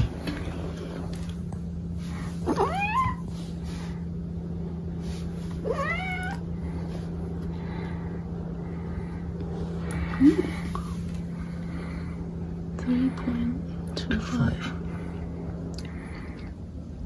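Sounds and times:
steady low hum: 0.0 - 17.0
cat meowing: 2.4 - 3.3, 5.6 - 6.4.

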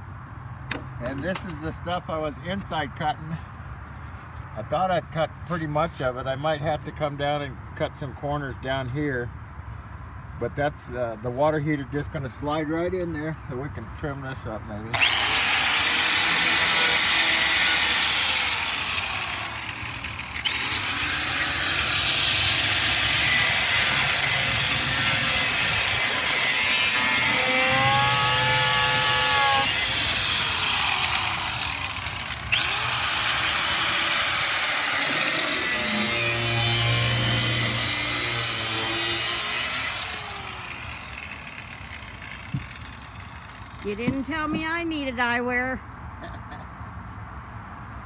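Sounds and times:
angle grinder cutting fiberglass: 15.0 - 44.6.

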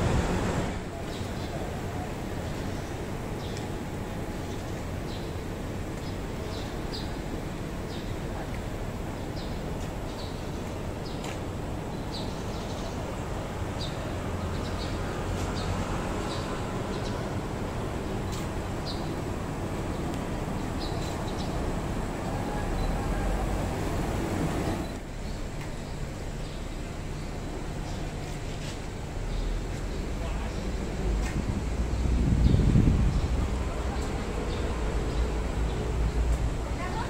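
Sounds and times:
vehicle approaching: 0.0 - 1.7, 12.6 - 25.2
traffic rumble: 0.0 - 37.0
small birds chirping: 0.9 - 21.9.

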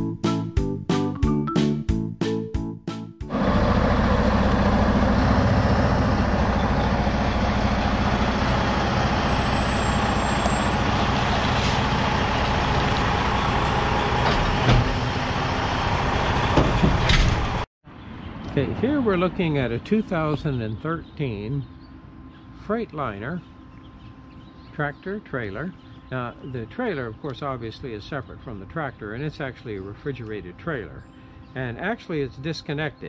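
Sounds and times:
piano music: 0.0 - 3.4
diesel engine idling: 3.3 - 17.6.

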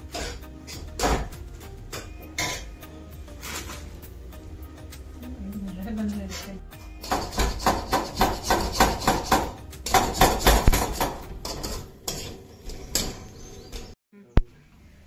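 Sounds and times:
knife chopping on cutting board: 7.0 - 12.3.

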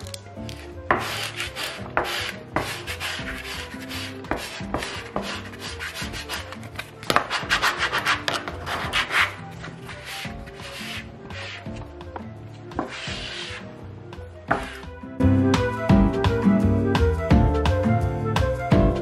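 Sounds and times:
background music: 0.0 - 19.0
squeegee rubbing on vinyl film: 0.5 - 11.9, 12.8 - 13.8, 14.5 - 14.9.

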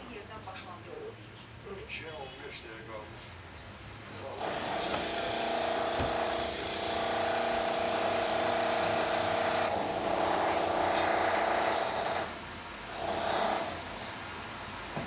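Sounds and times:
power drill buzzing: 4.4 - 14.2.

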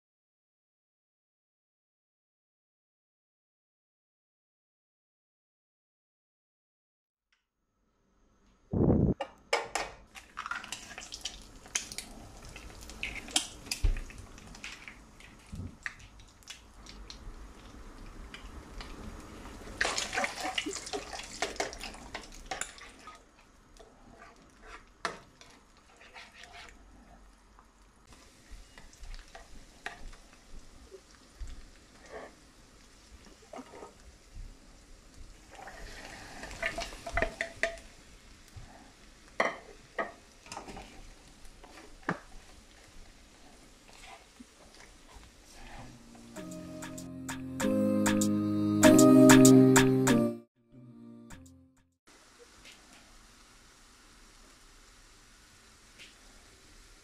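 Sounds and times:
eggs sizzling in hot oil: 10.0 - 45.6, 52.1 - 57.0
spatula scraping a pan: 23.8 - 27.2, 32.0 - 32.4, 33.5 - 34.0.

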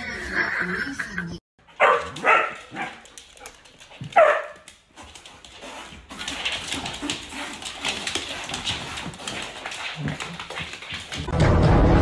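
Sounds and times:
animals scuffling: 1.8 - 11.3.

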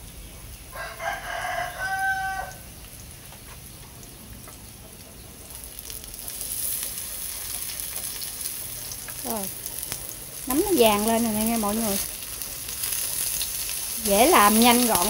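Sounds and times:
mushrooms sizzling in a pan: 0.0 - 15.0
rooster crowing: 0.7 - 2.7.

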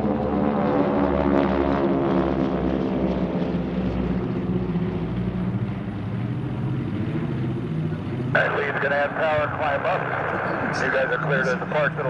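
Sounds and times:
propeller aircraft droning overhead: 0.0 - 12.0.

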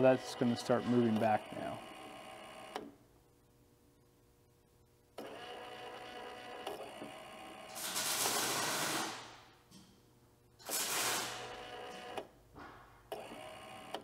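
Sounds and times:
electric motor running: 0.0 - 2.8.

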